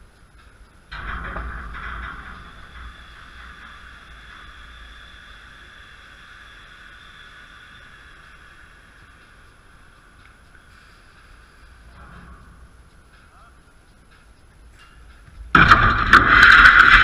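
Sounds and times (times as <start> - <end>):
low rumble: 0.0 - 17.0
chain-link fence rattling: 0.9 - 5.9.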